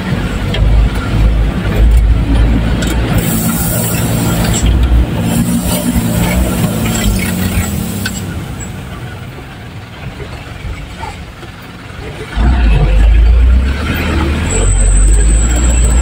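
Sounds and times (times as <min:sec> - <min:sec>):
cab rattle on rough road: 0:00.0 - 0:16.0
truck engine drone: 0:00.0 - 0:16.0
short high squeal: 0:14.4 - 0:16.0.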